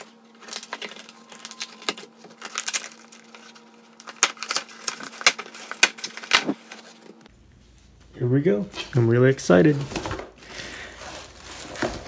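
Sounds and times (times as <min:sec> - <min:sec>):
tape crackling: 0:00.0 - 0:07.3
cardboard flap rustling: 0:09.7 - 0:12.0.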